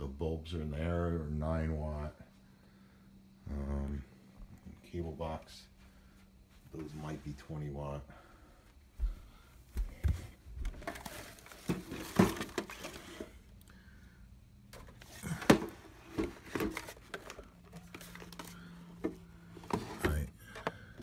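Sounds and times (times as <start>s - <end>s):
faint low hum: 0.0s - 21.0s
rustling and crinkling: 9.0s - 13.6s, 14.7s - 21.0s.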